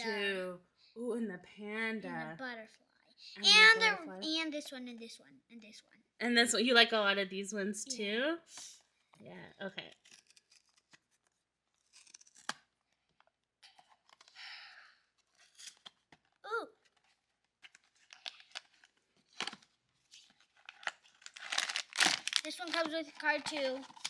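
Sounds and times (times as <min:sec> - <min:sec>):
cardboard tearing: 0:09.9 - 0:12.7, 0:20.6 - 0:22.9
packaging rustling: 0:15.2 - 0:24.0.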